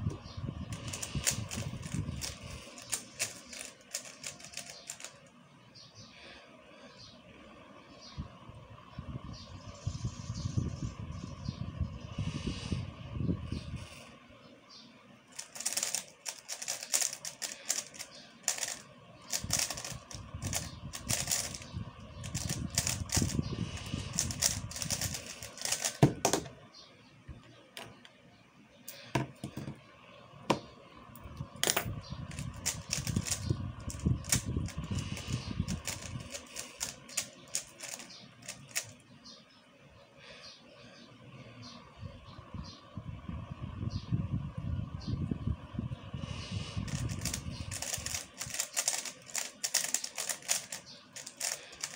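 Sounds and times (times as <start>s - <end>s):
puzzle cube plastic clicks: 0.7s - 5.4s, 15.3s - 26.5s, 31.6s - 39.0s, 46.8s - 51.9s.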